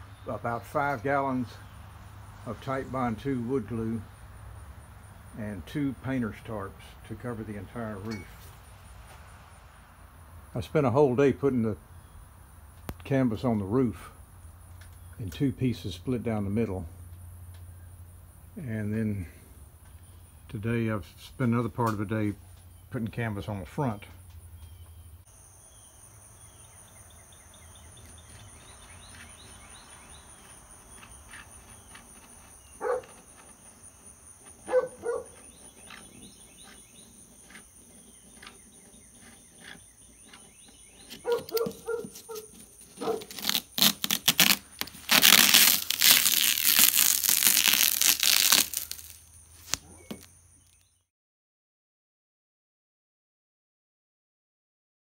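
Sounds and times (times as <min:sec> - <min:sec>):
loud rough tearing: 0:28.0 - 0:50.3
knife cutting canvas: 0:38.4 - 0:50.3.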